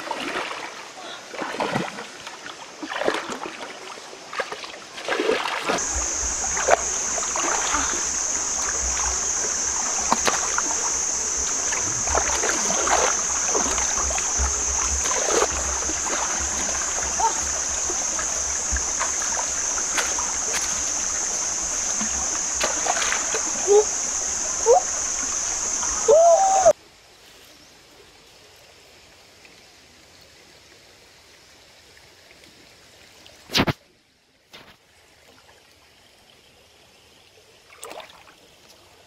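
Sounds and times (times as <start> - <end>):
hands splashing in stream: 0.0 - 26.7.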